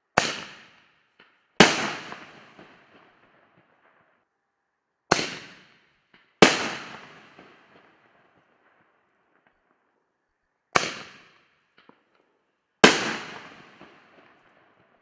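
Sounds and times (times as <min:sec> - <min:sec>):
firework bangs: 0:01.6 - 0:03.0, 0:12.8 - 0:14.6.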